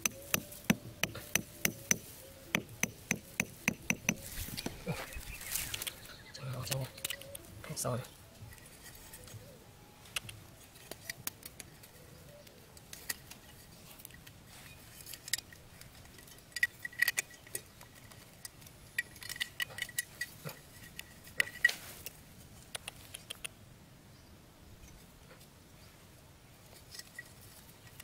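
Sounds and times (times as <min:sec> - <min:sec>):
hand saw clicking and tapping: 0:00.0 - 0:04.7.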